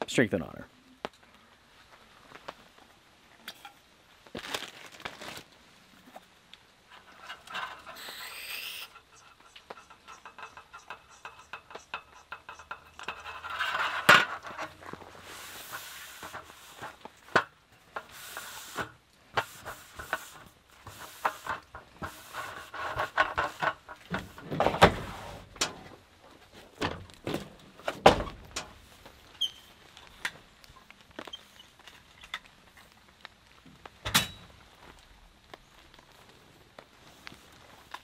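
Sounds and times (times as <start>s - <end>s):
paper towel wiping table: 18.0s - 23.6s.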